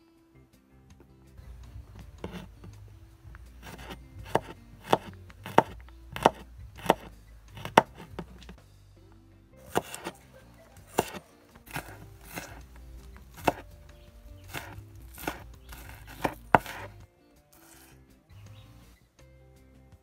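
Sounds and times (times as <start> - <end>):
knife chopping on wooden board: 1.8 - 2.8, 3.4 - 8.6, 9.7 - 10.2, 10.8 - 16.9, 17.6 - 17.9.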